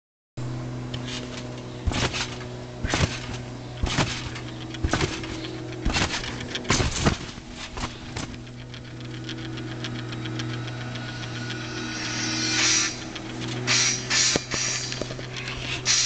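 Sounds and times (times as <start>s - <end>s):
trampoline bed thumping: 0.9s - 9.9s.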